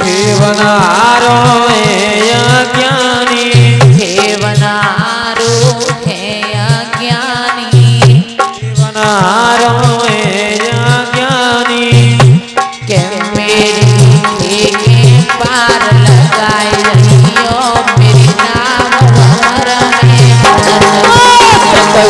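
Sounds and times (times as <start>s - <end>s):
hand drum beat: 0.0s - 22.0s
folk dance music: 13.8s - 22.0s.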